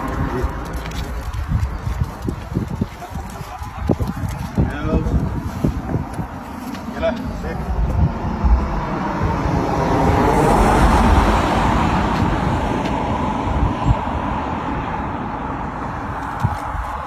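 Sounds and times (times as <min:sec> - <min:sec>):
vehicle passing close by: 0:05.2 - 0:17.0.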